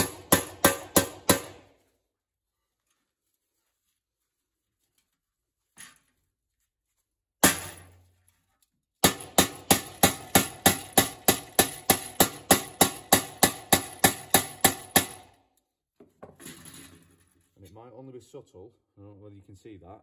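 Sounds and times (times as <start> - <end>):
mallet striking steel plate: 0.0 - 1.7.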